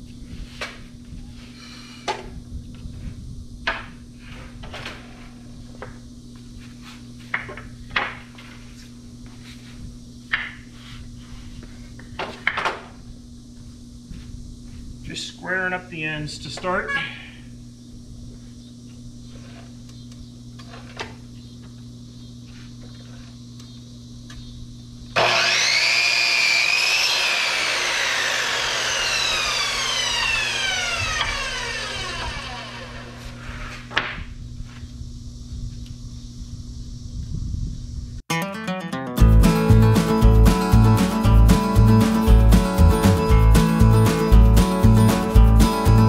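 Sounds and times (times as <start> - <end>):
electric saw cutting wood: 25.2 - 33.8.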